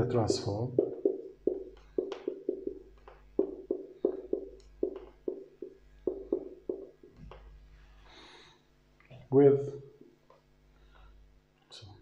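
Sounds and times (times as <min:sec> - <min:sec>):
marker tapping on whiteboard: 0:00.0 - 0:07.6.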